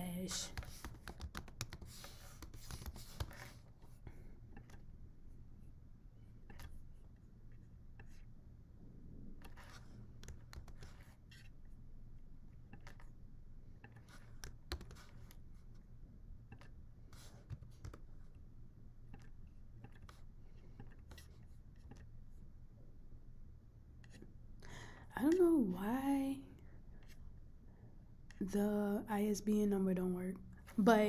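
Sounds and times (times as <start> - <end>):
low steady hum: 0.0 - 31.0
keyboard and mouse clicks: 0.4 - 3.6, 4.5 - 4.9, 6.4 - 6.8, 9.4 - 11.5, 12.6 - 13.1, 13.8 - 15.4, 16.4 - 16.8, 17.4 - 18.1, 19.1 - 22.1.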